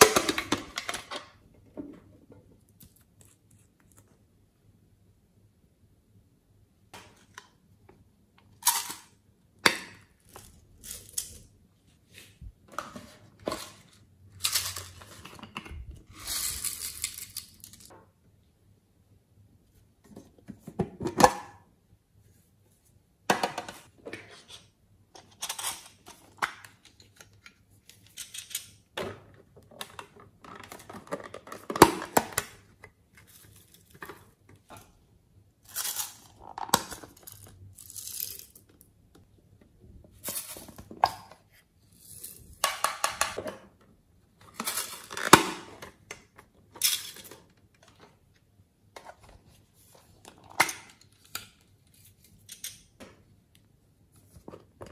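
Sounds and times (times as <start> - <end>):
sprinkles rattling in containers: 16.1 - 17.9, 37.2 - 38.6.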